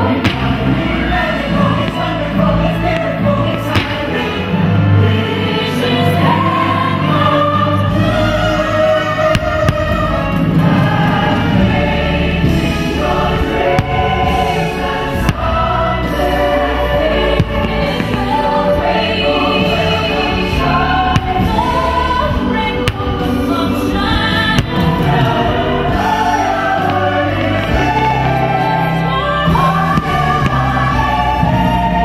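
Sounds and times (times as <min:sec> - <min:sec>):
choir singing held notes: 0:00.0 - 0:32.0
orchestral music: 0:00.0 - 0:32.0
firework shells bursting: 0:00.2 - 0:04.3.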